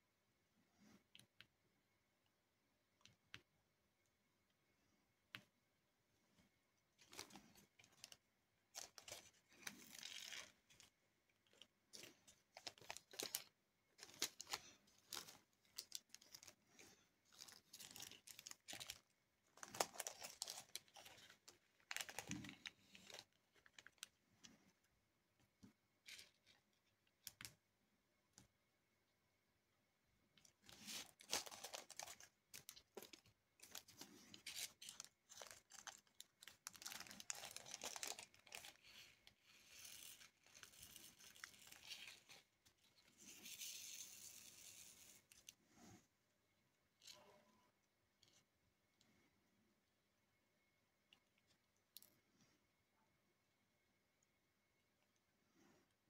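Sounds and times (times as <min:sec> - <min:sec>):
plastic crinkling and rattling: 0:07.0 - 0:24.2, 0:30.4 - 0:45.6.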